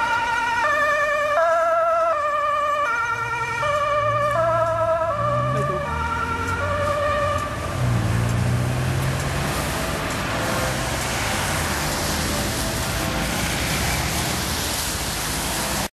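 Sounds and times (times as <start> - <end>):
ambulance two-tone siren: 0.0 - 8.1
city traffic noise: 0.0 - 15.9.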